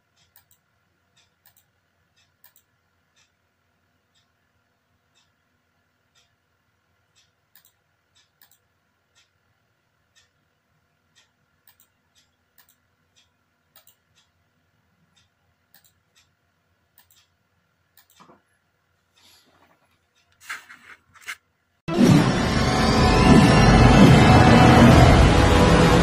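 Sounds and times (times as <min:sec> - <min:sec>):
computer mouse clicking: 0:00.2 - 0:03.3, 0:07.2 - 0:09.3, 0:11.2 - 0:14.3, 0:15.2 - 0:16.3, 0:16.9 - 0:17.4, 0:18.0 - 0:18.4.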